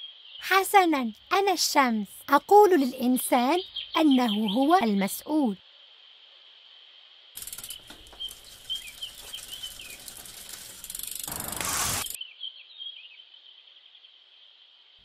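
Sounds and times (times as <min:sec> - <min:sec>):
birds chirping: 0:02.6 - 0:05.5, 0:07.4 - 0:12.2
bicycle freewheel ratcheting: 0:07.4 - 0:12.2.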